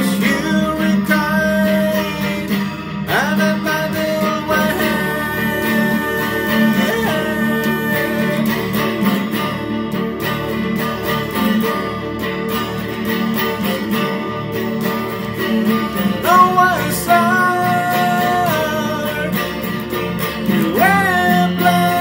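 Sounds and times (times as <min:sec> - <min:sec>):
man singing: 0:00.0 - 0:09.2, 0:16.2 - 0:19.8, 0:20.5 - 0:22.0
strummed electric guitar: 0:00.0 - 0:22.0.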